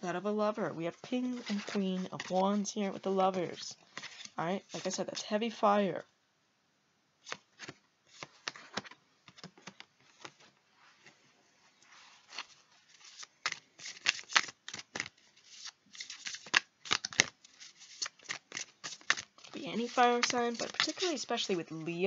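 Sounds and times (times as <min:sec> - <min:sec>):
cards snapping and flicking: 0:13.4 - 0:15.1, 0:16.0 - 0:17.3, 0:18.0 - 0:19.3.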